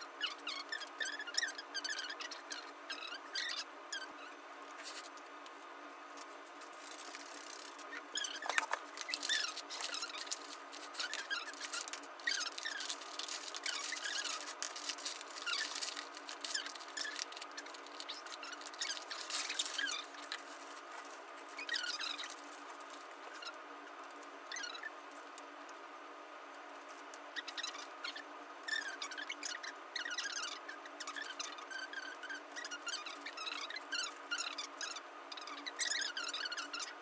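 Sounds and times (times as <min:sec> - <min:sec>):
markers squeaking on paper: 0:00.2 - 0:05.2, 0:06.6 - 0:24.9, 0:27.3 - 0:37.0
markers clattering: 0:06.8 - 0:20.6.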